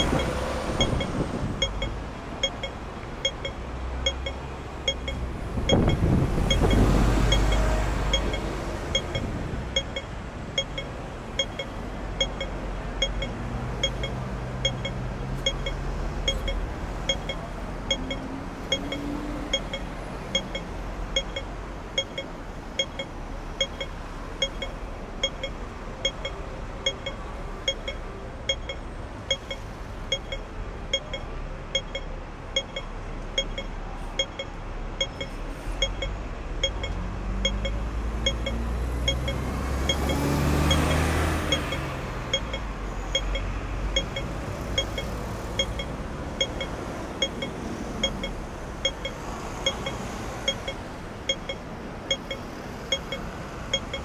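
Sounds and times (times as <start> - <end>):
vehicle engine passing: 0.0 - 2.2, 3.7 - 9.8, 36.4 - 51.2
crossing signal beeping: 0.0 - 54.0
street traffic hum: 0.0 - 54.0.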